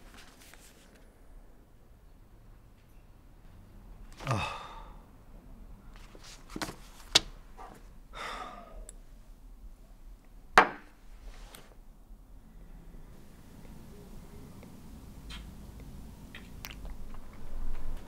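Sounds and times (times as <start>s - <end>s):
man sighing heavily: 4.2s - 5.1s, 8.2s - 8.9s.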